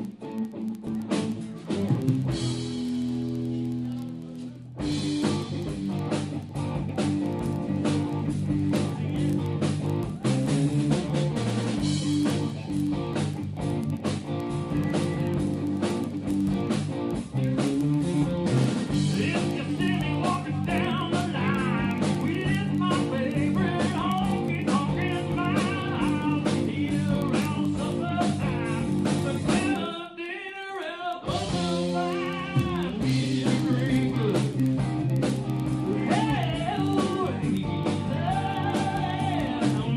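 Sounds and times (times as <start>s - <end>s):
blues-rock band playing: 0.0s - 30.0s, 31.2s - 39.9s
person singing: 19.0s - 34.6s, 35.8s - 39.9s.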